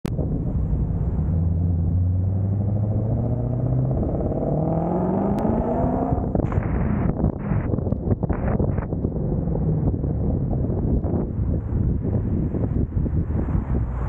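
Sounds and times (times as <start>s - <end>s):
car engine accelerating: 0.1s - 7.7s.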